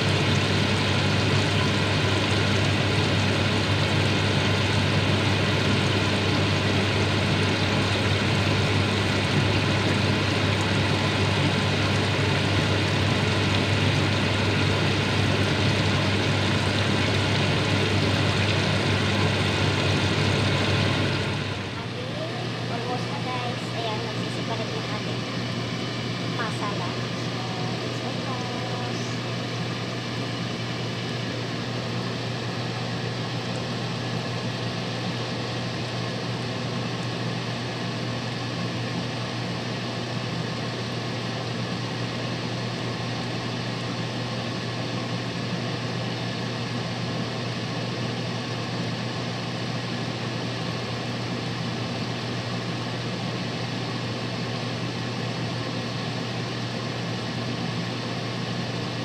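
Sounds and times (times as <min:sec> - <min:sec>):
fish sizzling in oil: 0:00.0 - 0:21.6.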